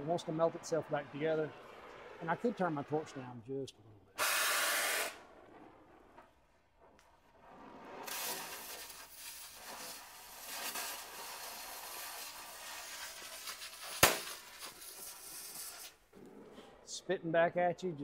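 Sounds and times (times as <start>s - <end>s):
cutting torch crackling hiss: 4.2s - 16.0s
sharp pop: 13.4s - 14.8s.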